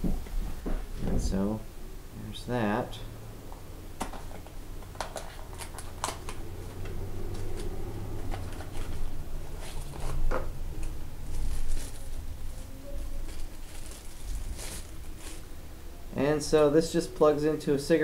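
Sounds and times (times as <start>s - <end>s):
packaging clicks and crinkles: 4.0s - 15.5s.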